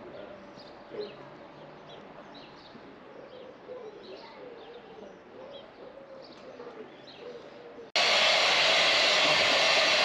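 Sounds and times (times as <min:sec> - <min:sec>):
birds chirping: 0:00.0 - 0:07.9
bird cooing: 0:03.0 - 0:07.9.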